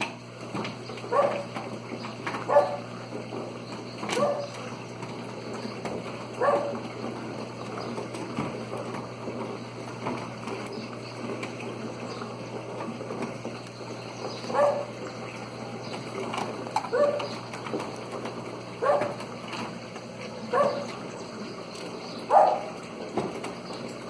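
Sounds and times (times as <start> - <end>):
dog barking: 1.1 - 1.5, 2.5 - 2.9, 4.2 - 4.5, 6.4 - 6.8, 14.5 - 14.9, 16.9 - 17.3, 18.8 - 19.2, 20.5 - 20.9, 22.3 - 22.8.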